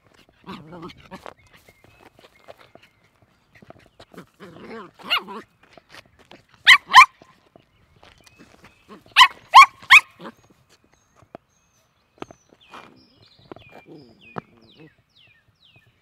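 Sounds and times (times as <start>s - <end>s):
puppy yapping: 6.7s - 7.2s, 9.1s - 10.3s.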